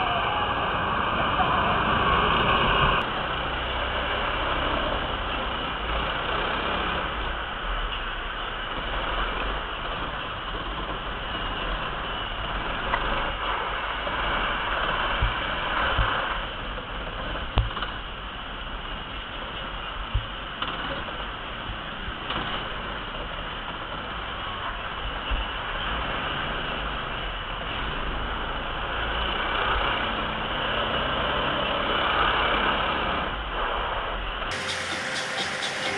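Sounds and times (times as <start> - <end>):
kart rattling mechanical noise: 0.0 - 35.9.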